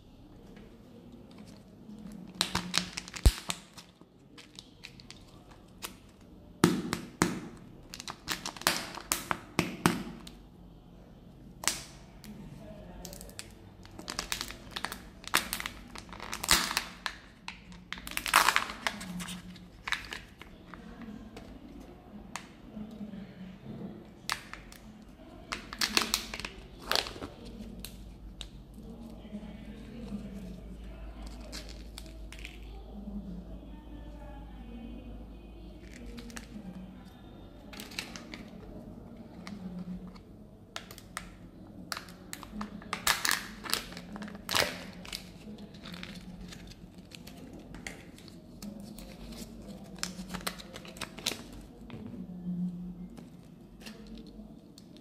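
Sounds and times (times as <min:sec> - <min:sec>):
wrapper crinkling and tearing: 0:02.1 - 0:06.0, 0:13.9 - 0:20.6, 0:31.2 - 0:32.6, 0:41.9 - 0:51.7.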